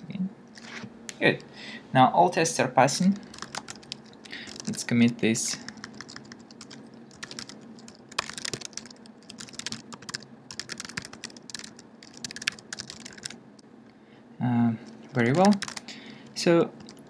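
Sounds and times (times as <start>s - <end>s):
typing on computer keyboard: 3.2s - 4.8s, 5.7s - 13.4s, 15.1s - 15.8s, 16.8s - 17.0s.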